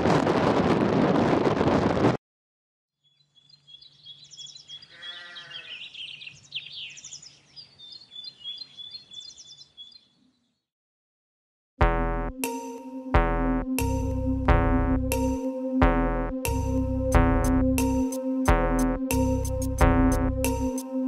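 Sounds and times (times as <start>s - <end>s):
livestock bleat: 4.9s - 5.8s.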